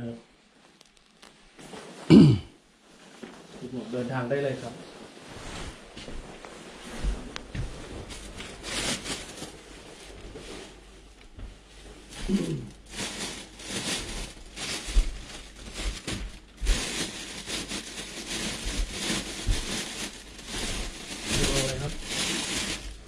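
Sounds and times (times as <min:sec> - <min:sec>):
rustling and crinkling handling: 0:00.5 - 0:23.0.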